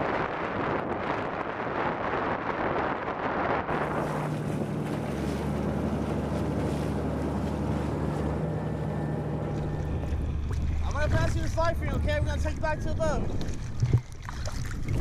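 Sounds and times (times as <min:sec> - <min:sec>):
wind on microphone: 0:00.0 - 0:06.8, 0:09.9 - 0:15.0
water rushing and splashing: 0:00.0 - 0:15.0
boat engines droning: 0:03.5 - 0:14.7.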